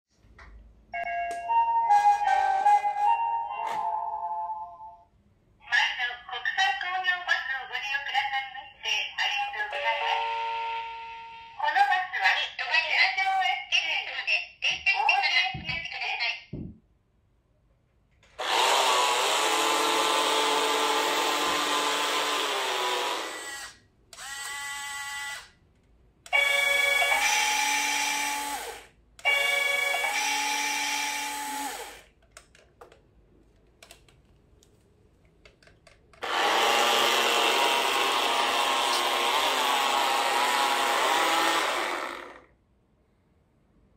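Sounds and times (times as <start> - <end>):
small electric motor whining: 20.4 - 25.5.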